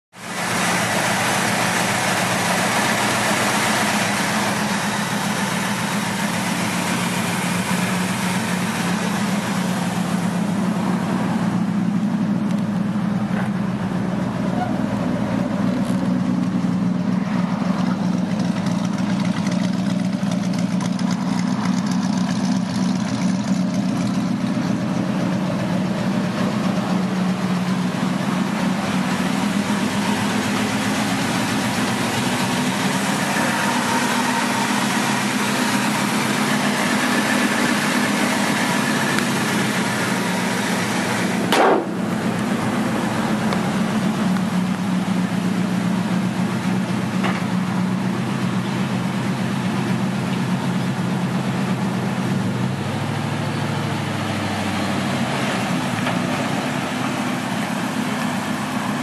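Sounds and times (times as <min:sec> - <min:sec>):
pickup engine idling: 0:00.1 - 0:59.0.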